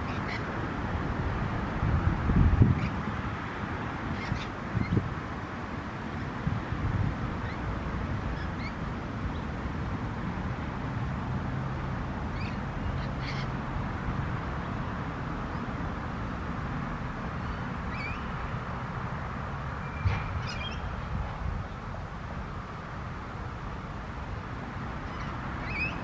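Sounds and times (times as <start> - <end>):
wind buffeting microphone: 0.0 - 5.4, 6.4 - 10.4
faint bird calls: 12.3 - 13.5.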